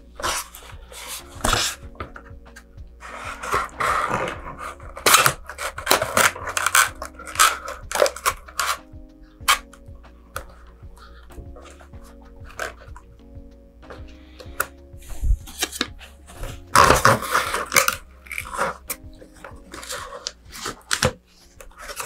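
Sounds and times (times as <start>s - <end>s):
background music: 0.0s - 22.0s
cardboard scraping and rustling: 0.2s - 8.9s, 15.1s - 22.0s.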